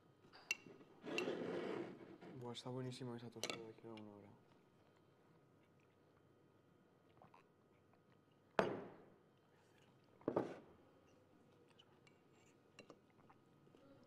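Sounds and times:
ceramic mugs set down on table: 8.6s - 9.1s, 10.2s - 10.6s.

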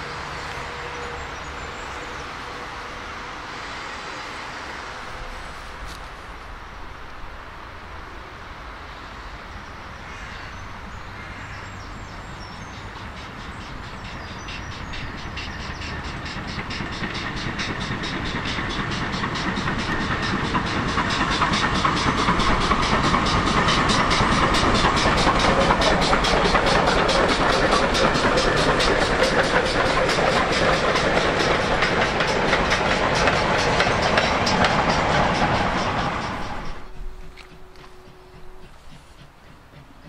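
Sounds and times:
steam locomotive exhaust beat: 11.9s - 40.0s
wagons rumbling over rail joints: 11.9s - 40.0s.

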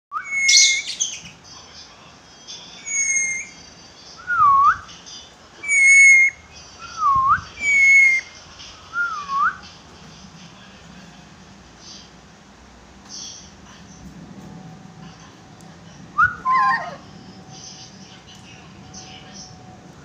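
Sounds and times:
parrot squawk: 0.2s - 1.3s, 5.6s - 6.4s, 7.6s - 8.3s, 16.4s - 17.1s
parrot whistling: 0.2s - 1.3s, 2.8s - 3.6s, 5.6s - 6.4s, 7.6s - 8.3s, 16.2s - 17.0s.

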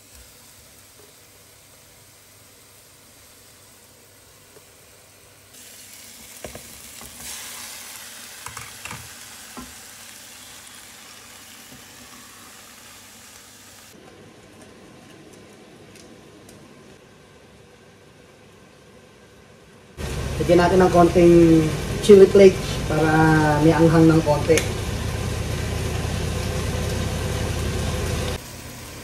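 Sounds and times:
meat sizzling in a pan: 0.0s - 14.0s.

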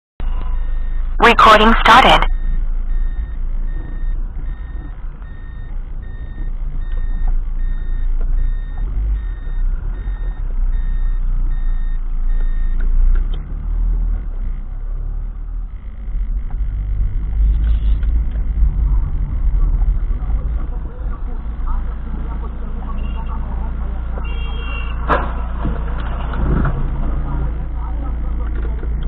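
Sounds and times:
car reversing beeper: 0.2s - 12.8s
low engine and road rumble: 0.2s - 29.0s.

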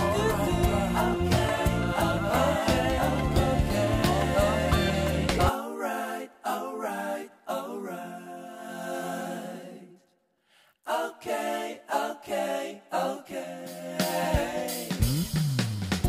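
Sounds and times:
sung vocal melody: 0.0s - 10.0s.

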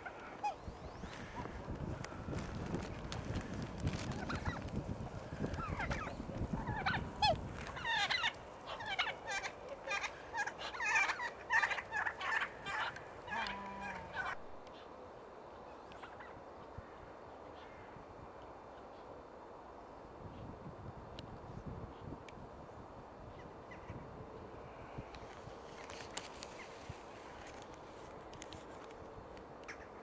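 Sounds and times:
geese and waterfowl calling: 0.0s - 2.4s, 5.4s - 14.9s
faint outdoor background: 0.0s - 30.0s.

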